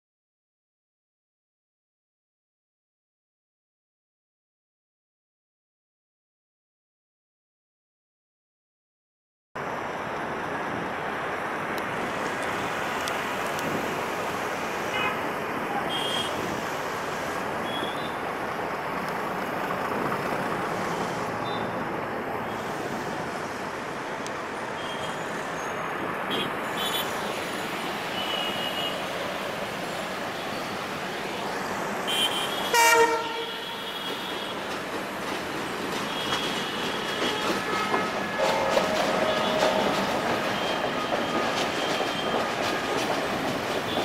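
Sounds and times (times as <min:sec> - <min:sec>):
diesel train approaching: 0:09.6 - 0:44.0
road traffic rumble: 0:09.6 - 0:44.0
locomotive horn blast: 0:32.1 - 0:34.6, 0:36.2 - 0:41.0.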